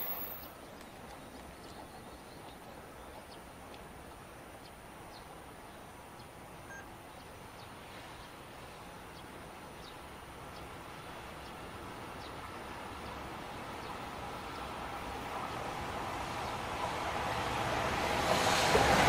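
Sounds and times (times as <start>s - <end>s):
distant freight train rumble: 0.0s - 19.0s.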